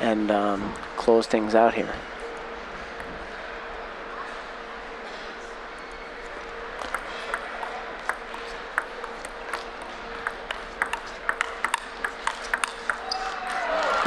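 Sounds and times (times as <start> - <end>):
hall hum: 1.8 - 14.0
table tennis ball clicking: 6.8 - 13.6.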